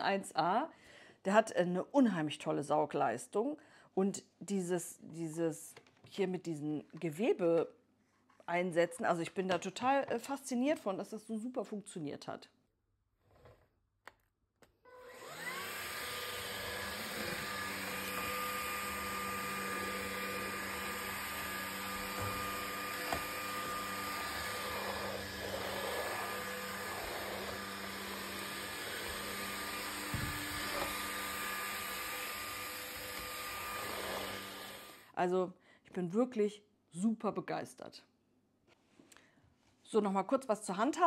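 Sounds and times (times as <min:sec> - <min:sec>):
stick vacuum motor whine: 0:14.9 - 0:35.1.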